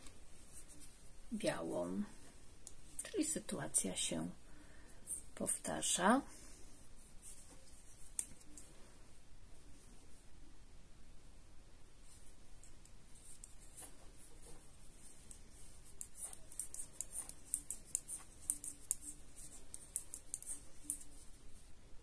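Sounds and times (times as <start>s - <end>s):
knitting needles clicking: 8.0s - 8.7s, 15.2s - 21.3s.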